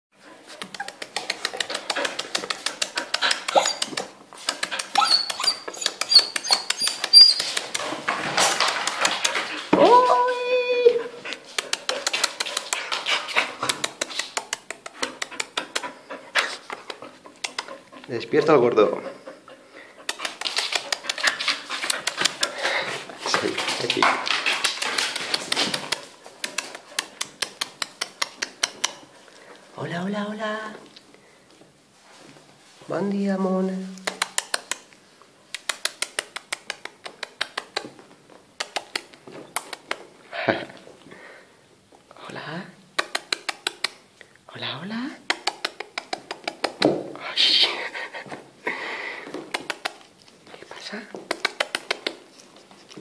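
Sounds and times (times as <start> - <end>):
puppies clicking and mouthing: 0.4 - 10.2, 10.8 - 29.7, 34.0 - 41.0, 42.9 - 44.2, 45.2 - 47.0, 47.9 - 53.0
puppies whining and squeaking: 3.0 - 4.1, 4.7 - 7.8.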